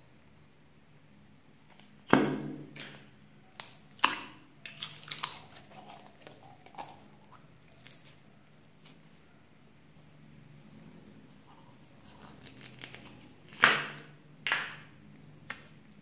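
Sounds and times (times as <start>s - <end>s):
plastic and slime crackling: 11.9s - 14.8s.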